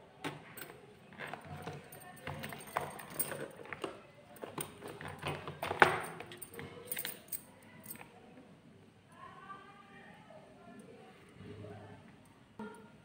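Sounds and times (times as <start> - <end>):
handling clicks and rustles: 0.2 - 8.1
bangles clinking: 0.6 - 8.1.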